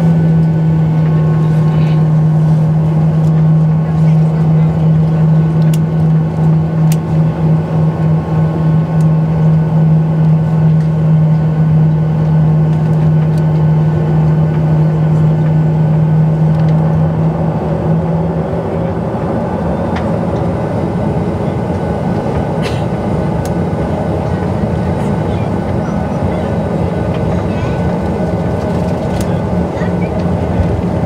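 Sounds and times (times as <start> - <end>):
jet engines rumbling: 0.0 - 31.0
strong low hum: 0.0 - 31.0
cabin air noise: 19.1 - 31.0.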